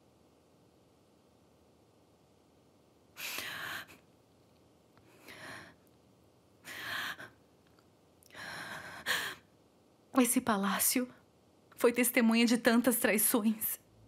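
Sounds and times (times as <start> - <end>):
person breathing heavily: 6.6 - 7.4, 8.3 - 9.5.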